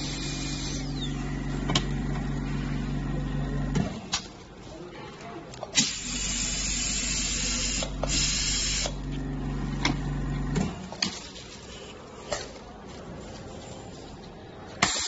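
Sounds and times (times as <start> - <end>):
compressor motor hum: 0.0 - 4.0, 5.8 - 10.9.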